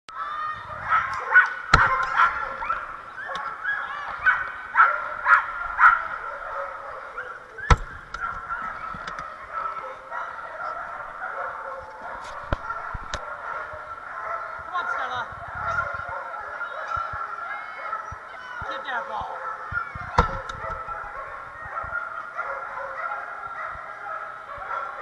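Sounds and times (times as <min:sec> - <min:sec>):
dogs barking and yelping: 0:00.2 - 0:25.0
sharp knocks: 0:07.6 - 0:08.4, 0:20.1 - 0:20.8.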